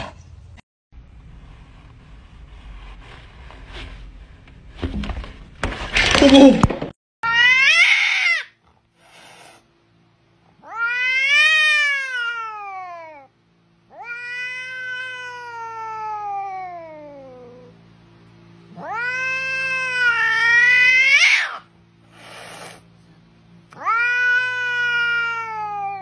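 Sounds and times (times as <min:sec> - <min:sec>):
cat meowing: 0:07.2 - 0:08.6, 0:10.6 - 0:13.3, 0:13.9 - 0:17.7, 0:18.7 - 0:21.7, 0:23.8 - 0:26.0.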